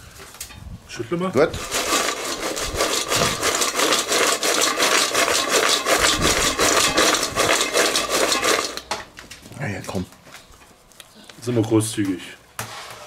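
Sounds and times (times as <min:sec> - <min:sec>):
fries rattling in a metal bowl: 0:01.3 - 0:09.1.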